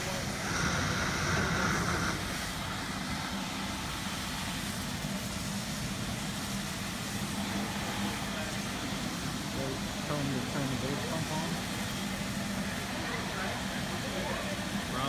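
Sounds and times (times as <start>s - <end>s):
motor drone: 0.0s - 15.0s
rushing hiss: 0.0s - 15.0s.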